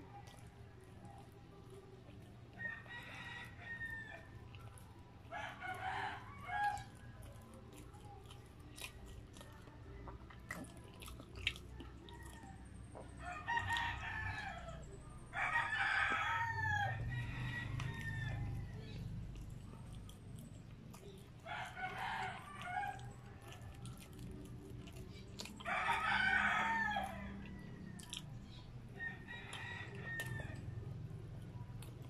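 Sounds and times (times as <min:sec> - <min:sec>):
chewing and mouth clicks: 0:00.0 - 0:32.0
rooster crowing: 0:02.5 - 0:04.4, 0:05.3 - 0:07.0, 0:11.8 - 0:19.0, 0:21.4 - 0:23.9, 0:25.6 - 0:28.2, 0:29.0 - 0:30.8.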